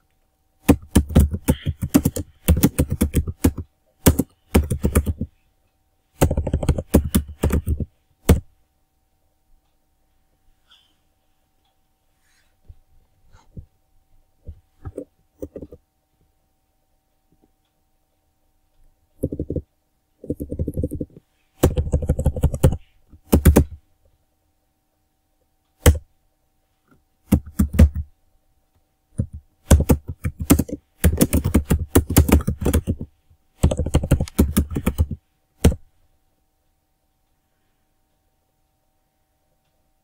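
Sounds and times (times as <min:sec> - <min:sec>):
typing on computer keyboard: 0:00.6 - 0:05.3, 0:06.2 - 0:08.5, 0:14.9 - 0:15.8, 0:19.2 - 0:23.8, 0:27.3 - 0:28.1, 0:29.2 - 0:35.8.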